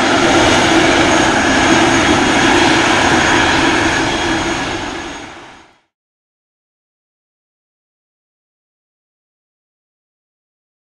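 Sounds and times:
loud jet engine roar with whine: 0.0s - 6.0s.

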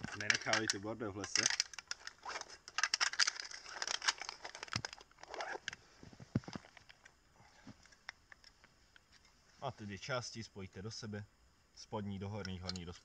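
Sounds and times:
jacket rustling and clicking: 0.0s - 9.4s.

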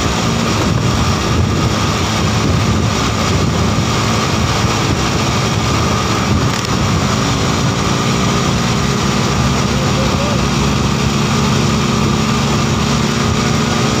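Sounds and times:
motorcycle engine running: 0.0s - 14.0s
wind buffeting microphone: 0.0s - 14.0s.

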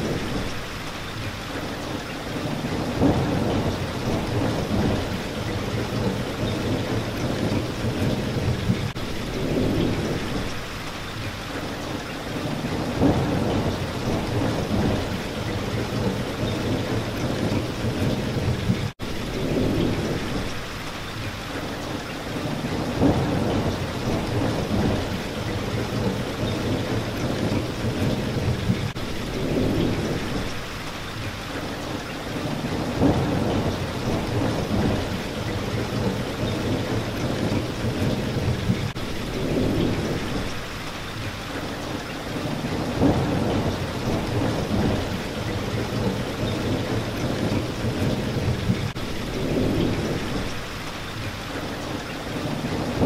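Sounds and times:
rain pattering on window: 0.0s - 53.0s.

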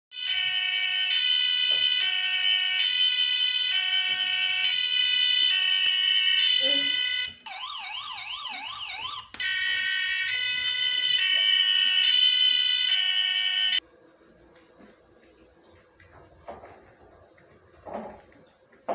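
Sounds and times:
electronic police siren: 0.1s - 13.8s.

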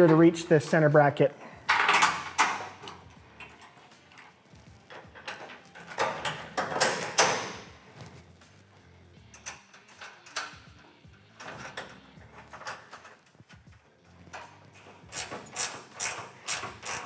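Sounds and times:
metal clicks and knocks: 1.7s - 4.3s, 4.9s - 7.7s, 9.3s - 15.7s
metal clanks: 1.7s - 7.8s, 9.2s - 17.0s.

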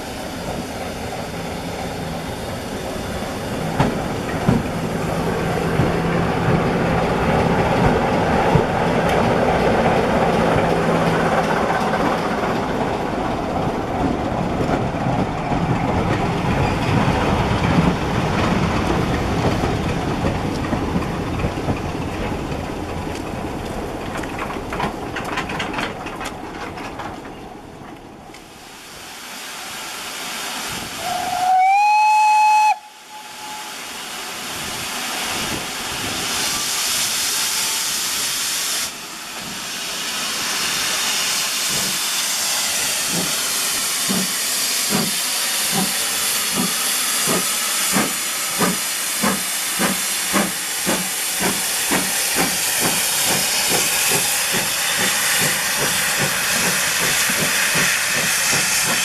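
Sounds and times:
hiss of steam: 0.0s - 6.6s, 28.4s - 59.0s
steam locomotive exhaust beats: 30.7s - 59.0s
steam locomotive whistle: 31.0s - 34.0s.

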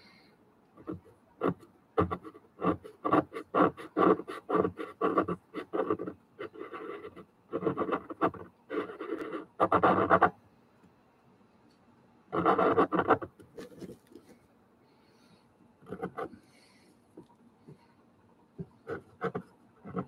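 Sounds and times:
pastel pencil scratching on paper: 0.8s - 10.3s, 12.4s - 14.1s, 15.9s - 16.3s, 18.8s - 20.0s.

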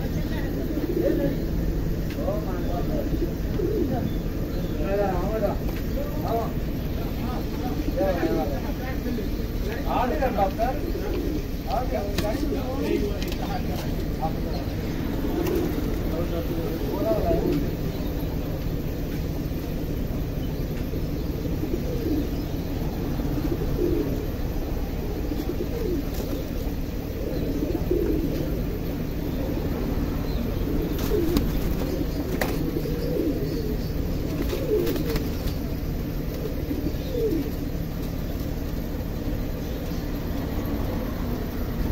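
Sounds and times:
pigeons cooing: 0.0s - 41.9s
wing flutter: 14.9s - 16.7s, 30.8s - 32.9s, 34.2s - 39.0s.

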